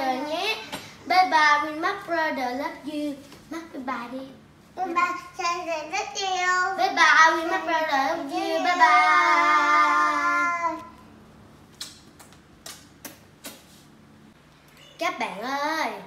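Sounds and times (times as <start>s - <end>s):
child singing: 7.5s - 10.9s
sharp smacks: 11.7s - 13.7s.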